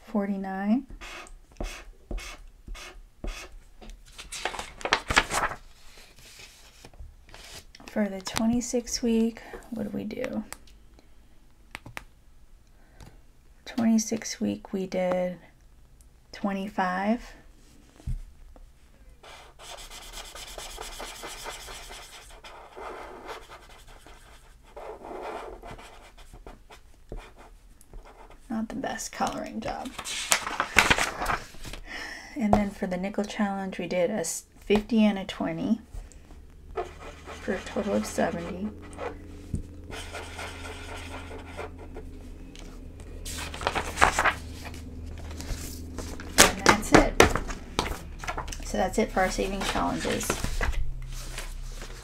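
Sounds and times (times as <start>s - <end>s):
marker scratching on paper: 1.0s - 3.5s, 19.2s - 28.4s, 36.7s - 39.2s, 39.9s - 42.1s
paper rustling: 4.0s - 7.7s, 29.8s - 31.8s, 42.6s - 52.0s.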